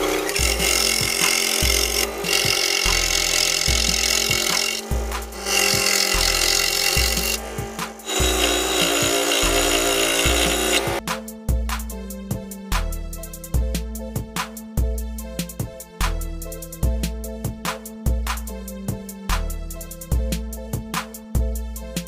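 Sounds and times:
scroll saw cutting wood: 0.0s - 11.0s.

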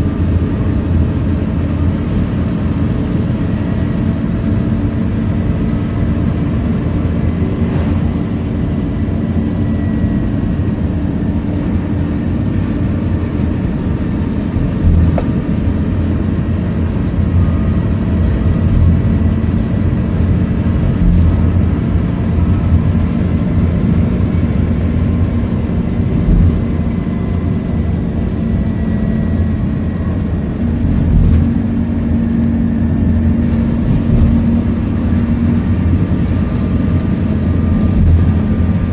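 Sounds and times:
bus diesel engine and road noise: 0.0s - 38.9s.

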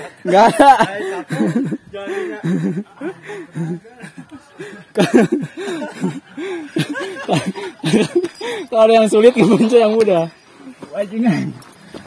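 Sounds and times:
people laughing: 0.0s - 10.0s.

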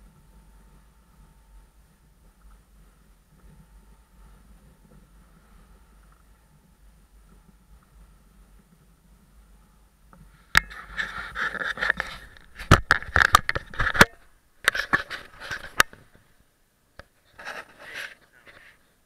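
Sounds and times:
scraping on camera housing: 10.2s - 16.2s, 17.0s - 18.9s.

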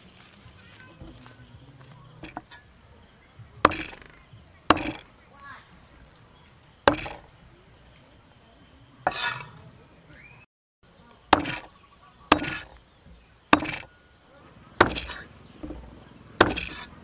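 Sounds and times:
cleaver chopping on wooden block: 3.6s - 5.1s, 6.9s - 7.3s, 11.3s - 11.7s, 12.3s - 13.9s, 14.8s - 17.0s.

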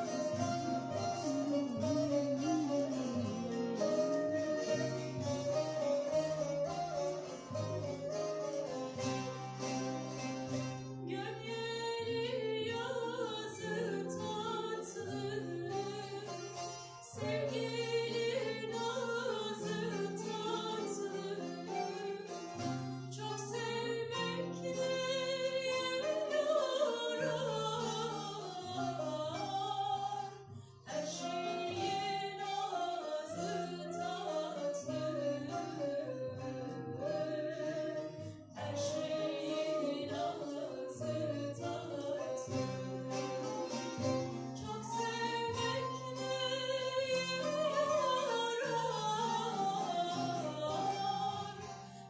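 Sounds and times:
instrumental accompaniment low notes: 0.0s - 11.2s
woman singing folk song: 0.0s - 52.0s.

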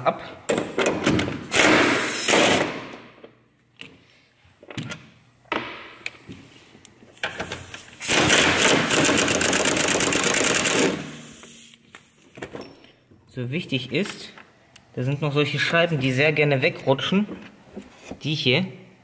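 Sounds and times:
impact wrench rattling: 7.3s - 11.2s.

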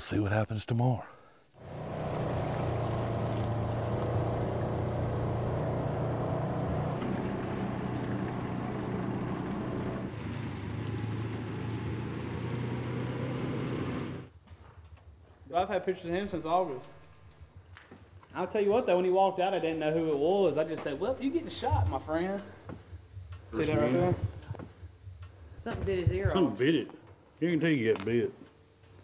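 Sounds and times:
car engine and road noise: 1.6s - 14.4s.

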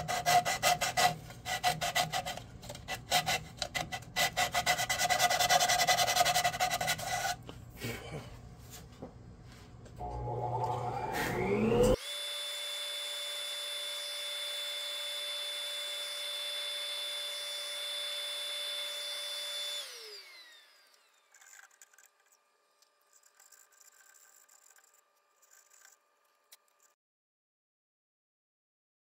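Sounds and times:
sandpaper scratching: 0.0s - 7.4s, 21.3s - 26.9s
power tool motor whining: 10.0s - 26.9s.

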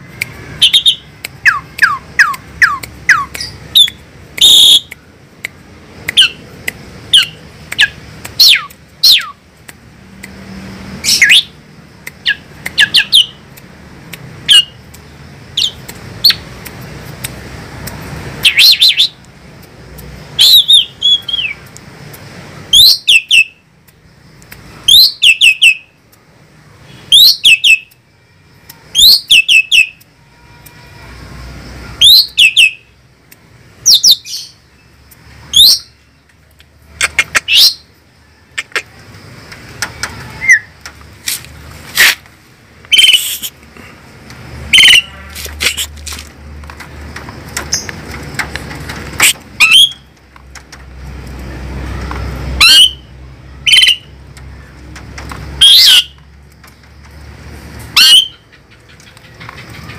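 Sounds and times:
starling whistled calls: 20.4s - 21.6s, 40.3s - 40.7s, 42.9s - 43.5s, 44.7s - 45.9s, 49.2s - 50.1s, 52.6s - 54.1s, 55.6s - 56.2s, 58.0s - 58.4s.

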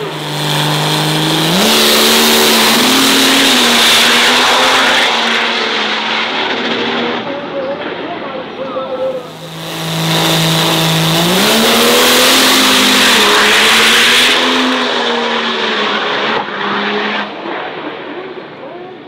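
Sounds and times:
drag racing engine at full power: 0.0s - 19.0s.

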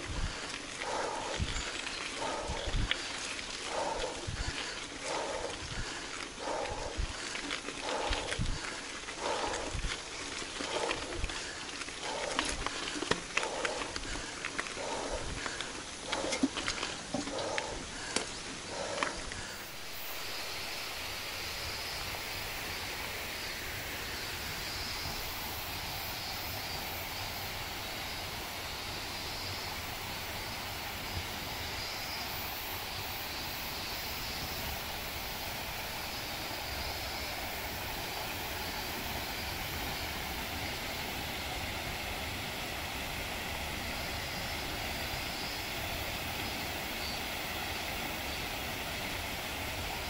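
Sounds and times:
wind rumbling on microphone: 0.0s - 19.8s
tyres rolling on trail: 0.0s - 50.0s.

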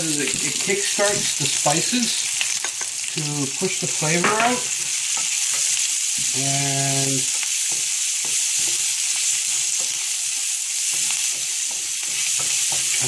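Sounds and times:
onions sizzling in oil: 0.0s - 13.0s
wooden spoon scraping: 7.3s - 13.0s.

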